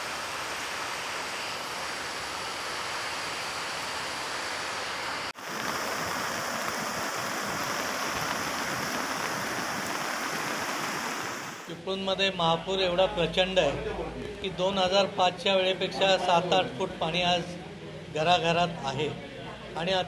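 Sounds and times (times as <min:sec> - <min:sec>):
floodwater rushing: 0:00.0 - 0:11.7.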